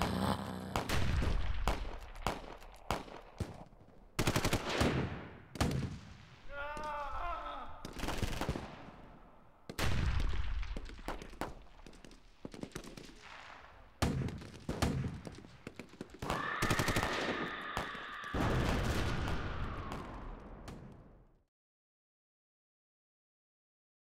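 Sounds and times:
heavy blasts: 0.0 - 2.7, 16.2 - 20.8
gunshots: 0.0 - 21.3.

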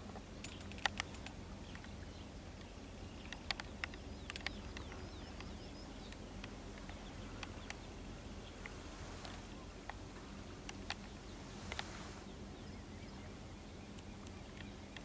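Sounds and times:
low steady hum: 0.0 - 15.0
sharp clicks and ticks: 0.4 - 2.0, 2.6 - 7.9
faint bird chirps: 0.4 - 15.0.

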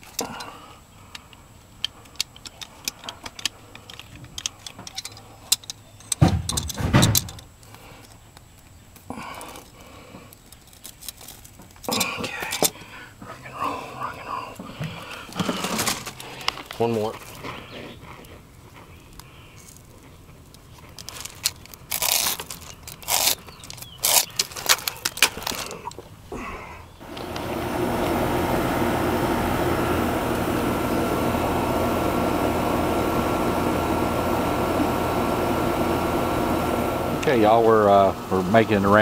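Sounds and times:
handling clicks and scrapes: 0.0 - 13.4, 14.5 - 26.2
air conditioner unit humming: 21.1 - 39.0.

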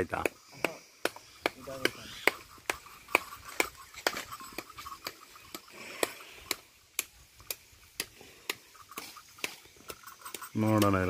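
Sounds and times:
sharp knocks on fruit: 0.0 - 4.2.

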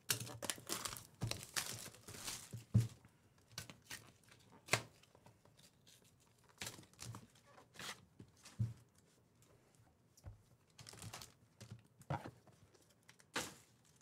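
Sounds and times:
wrapping tearing and crinkling: 0.1 - 2.7, 3.6 - 8.0, 10.7 - 11.4.

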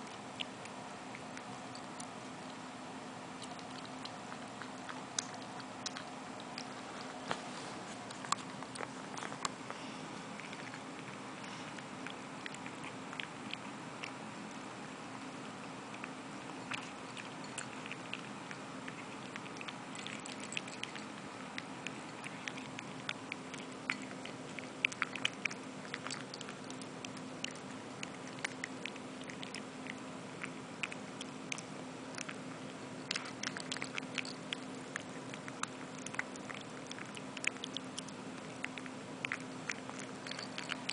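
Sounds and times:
puppy crunching kibble: 0.0 - 40.9
steady low hum: 0.0 - 40.9
kibble clicking against bowl: 33.0 - 40.9.

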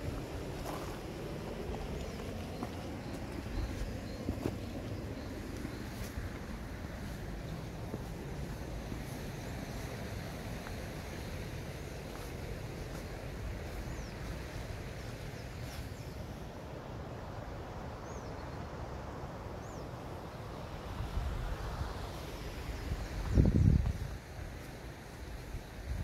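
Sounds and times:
wind on microphone: 22.9 - 24.6.

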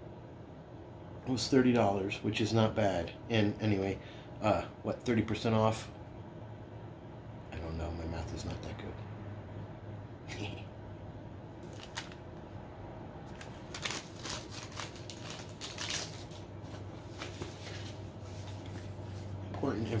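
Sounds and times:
paper leaflet crinkling: 11.6 - 12.2, 13.3 - 19.2.

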